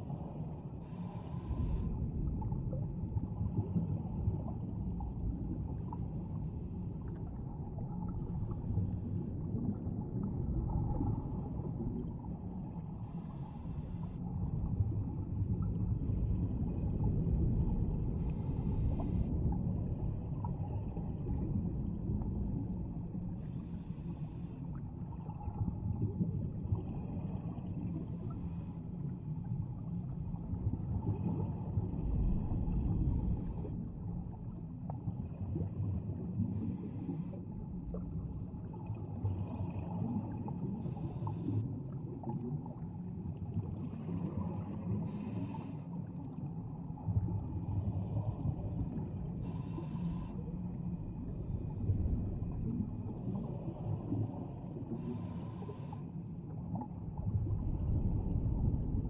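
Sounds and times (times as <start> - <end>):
low underwater rumble: 0.0 - 59.0
diver breathing through regulator: 0.8 - 2.1, 5.8 - 7.3, 13.0 - 14.2, 18.2 - 19.4, 23.4 - 24.7, 27.9 - 28.9, 36.4 - 37.6, 40.7 - 41.7, 45.0 - 46.0, 49.4 - 50.6, 54.9 - 56.2.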